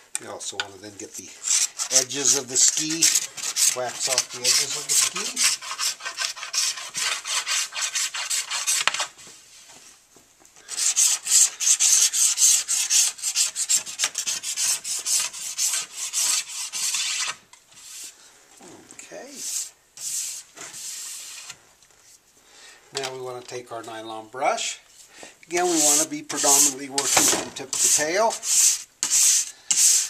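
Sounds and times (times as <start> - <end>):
wax scraping off ski: 1.4 - 9.2, 25.6 - 30.0.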